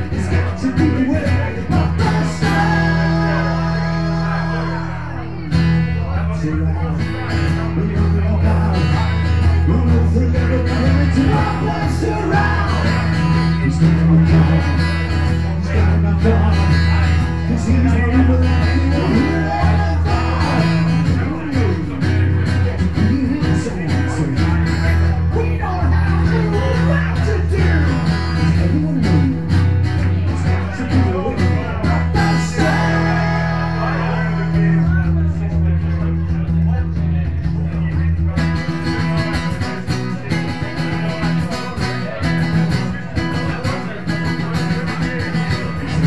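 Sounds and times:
person singing: 0:00.0 - 0:05.2, 0:08.0 - 0:14.8, 0:17.5 - 0:22.0, 0:30.7 - 0:35.0
acoustic guitar: 0:00.0 - 0:46.0.

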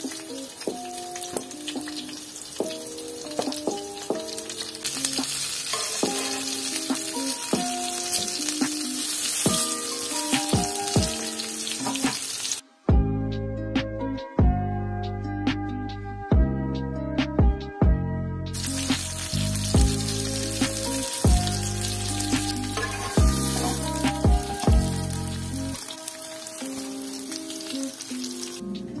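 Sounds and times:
patties sizzling in oil: 0:00.0 - 0:12.6, 0:18.6 - 0:29.0
background music with bass beat: 0:12.9 - 0:25.8.

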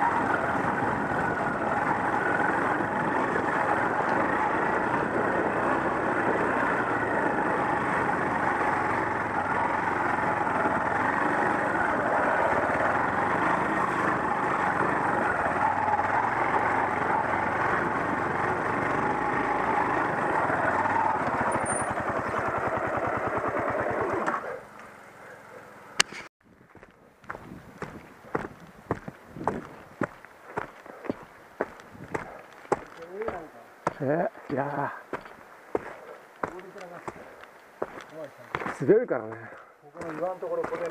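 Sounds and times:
off-road motorcycle engine running: 0:00.0 - 0:25.1, 0:26.7 - 0:40.9.

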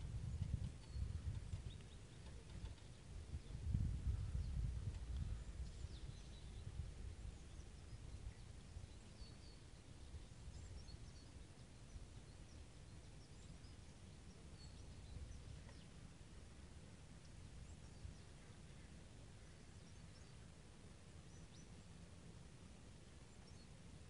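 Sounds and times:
small birds chirping: 0:00.0 - 0:22.0, 0:23.2 - 0:24.0.

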